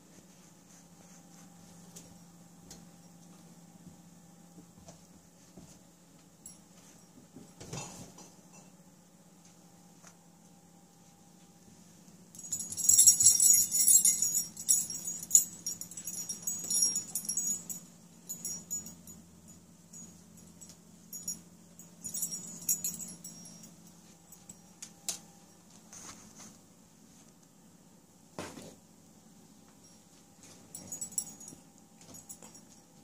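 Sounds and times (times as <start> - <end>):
small bells jingling: 12.3 - 25.6, 29.8 - 33.0.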